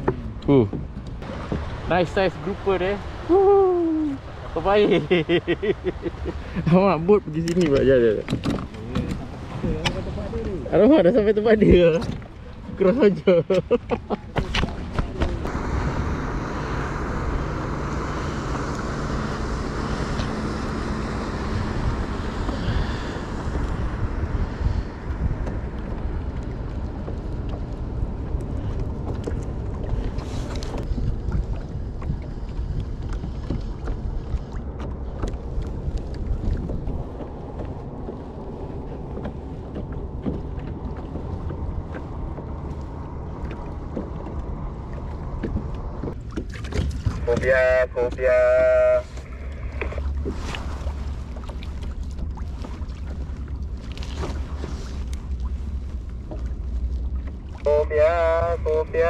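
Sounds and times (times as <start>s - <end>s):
wind buffeting microphone: 14.2s - 47.4s.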